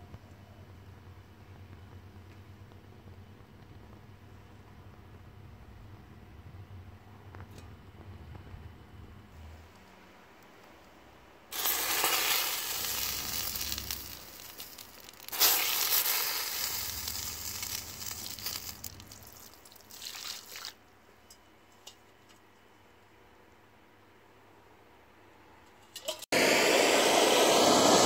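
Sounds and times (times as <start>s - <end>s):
water hissing on fire: 11.5s - 20.8s.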